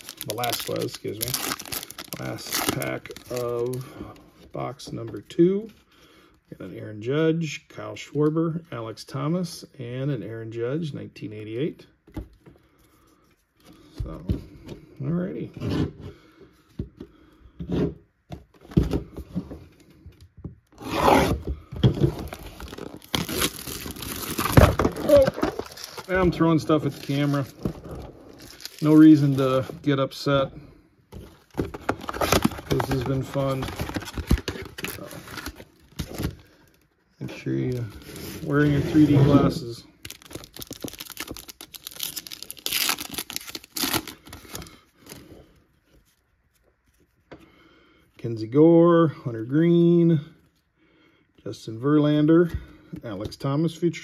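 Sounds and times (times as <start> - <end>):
foil wrapper ripping: 0.0 - 3.5, 40.0 - 44.3
foil wrapper crinkling: 0.0 - 3.8, 22.3 - 27.5, 40.0 - 44.7
knife scraping cardboard: 20.8 - 21.4.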